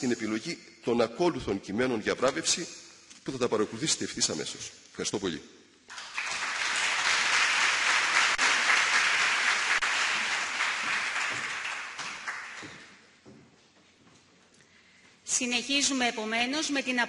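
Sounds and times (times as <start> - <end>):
audience applauding: 5.9 - 13.0.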